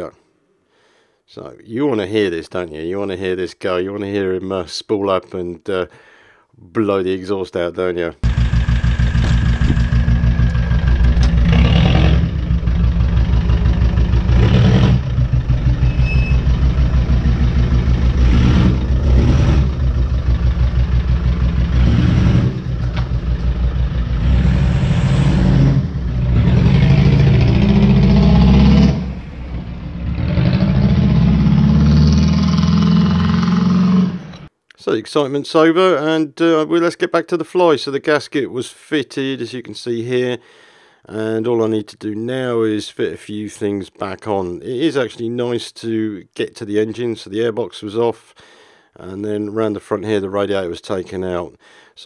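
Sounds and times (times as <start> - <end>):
diesel engine revving: 8.2 - 34.5.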